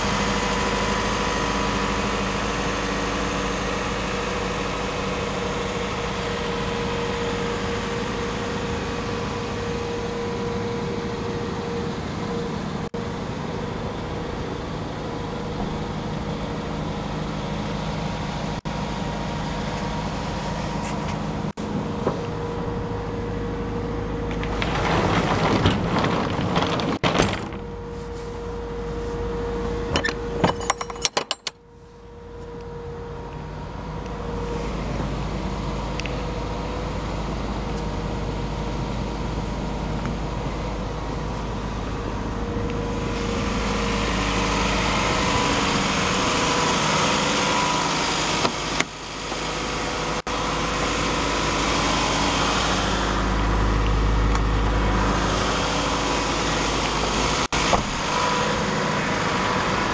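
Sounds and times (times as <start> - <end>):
diesel truck idling: 0.0 - 30.4, 32.0 - 59.9
handling clatter: 24.2 - 28.5, 29.9 - 31.6.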